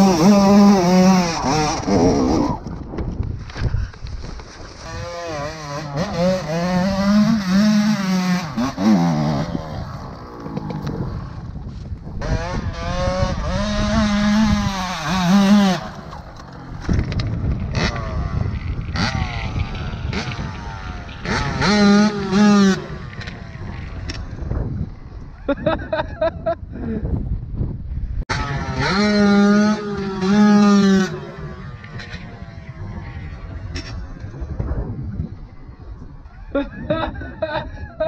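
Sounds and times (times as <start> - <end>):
dirt bike engine revving: 0.0 - 2.8, 4.7 - 25.0, 28.3 - 35.4.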